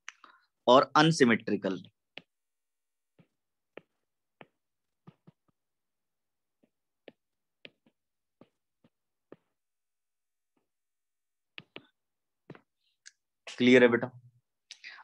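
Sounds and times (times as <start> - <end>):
stylus tapping on glass screen: 3.1 - 5.6, 6.6 - 9.7, 11.4 - 12.8.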